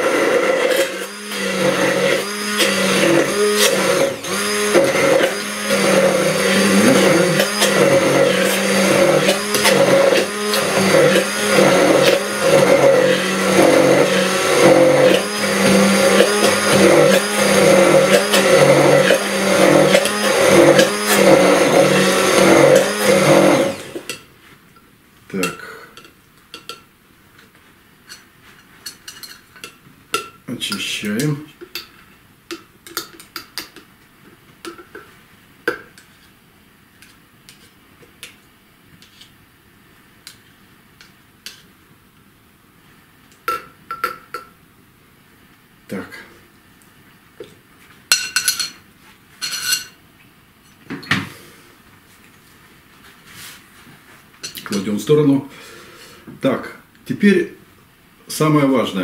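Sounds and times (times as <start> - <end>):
immersion blender running: 0.0 - 24.1.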